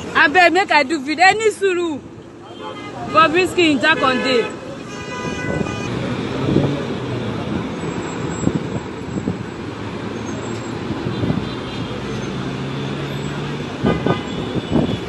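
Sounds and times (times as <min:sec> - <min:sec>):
idling vehicles hum: 0:00.0 - 0:15.0
car horn: 0:02.4 - 0:06.1, 0:11.0 - 0:12.2, 0:13.8 - 0:15.0.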